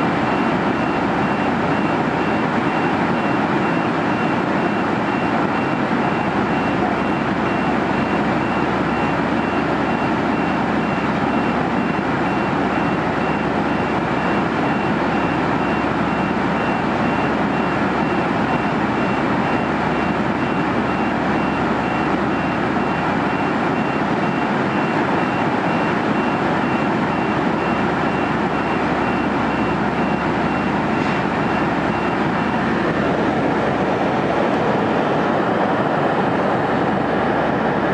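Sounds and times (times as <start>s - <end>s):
airliner cabin drone: 15.6s - 37.9s.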